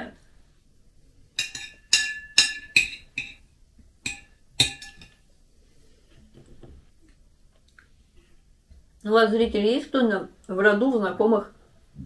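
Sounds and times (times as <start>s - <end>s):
metal spoon clinking on plate: 1.4s - 5.2s.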